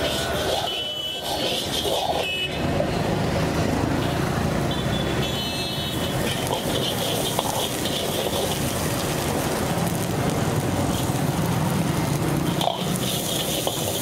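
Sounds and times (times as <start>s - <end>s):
ladle scraping a wok: 0.0s - 2.4s, 12.8s - 14.0s
road traffic: 0.0s - 14.0s.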